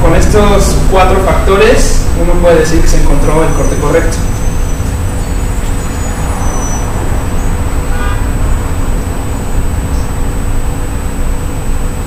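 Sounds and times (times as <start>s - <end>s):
low room rumble: 0.0s - 12.0s
thin high whine: 0.0s - 12.0s.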